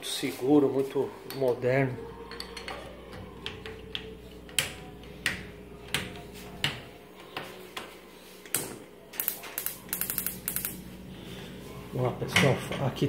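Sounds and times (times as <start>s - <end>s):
spark igniter ticking: 9.2s - 10.8s.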